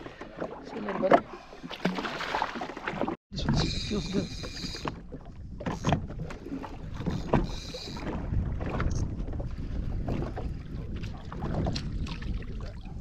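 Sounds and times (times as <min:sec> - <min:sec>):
small knocks and splashes: 0:00.0 - 0:03.2
water lapping against hull: 0:00.0 - 0:13.0
wind buffeting microphone: 0:03.4 - 0:13.0.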